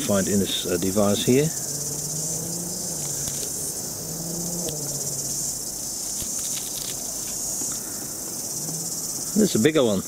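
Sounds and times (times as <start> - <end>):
high-pitched insect chorus: 0.0 - 10.0
light clicks of wasp nest: 3.0 - 3.6, 6.0 - 8.8.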